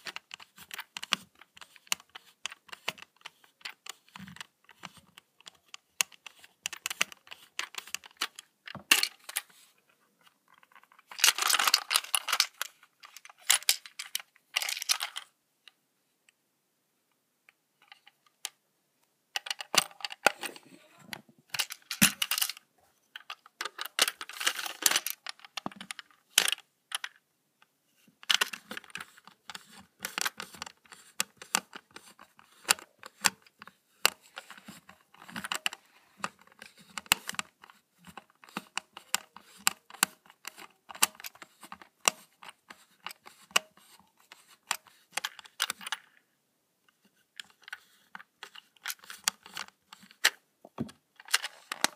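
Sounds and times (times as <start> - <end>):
packaging clicks and rustling: 10.6 - 15.3, 23.2 - 26.6.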